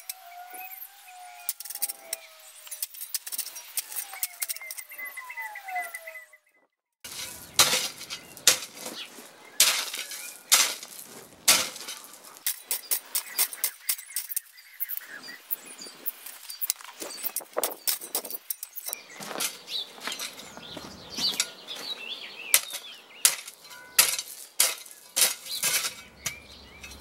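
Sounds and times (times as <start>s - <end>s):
spade scraping stony soil: 7.0s - 27.0s.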